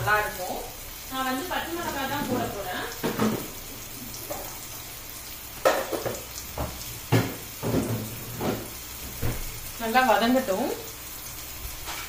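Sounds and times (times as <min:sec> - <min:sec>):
onions sizzling in a pan: 0:00.0 - 0:12.0
scrapes and knocks against pan: 0:05.7 - 0:08.7.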